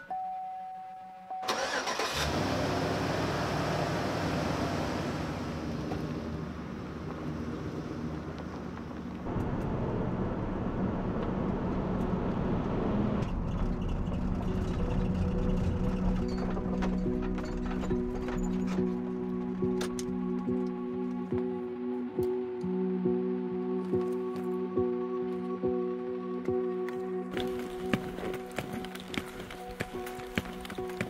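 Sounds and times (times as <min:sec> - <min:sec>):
van engine starting and running: 0:01.4 - 0:20.2.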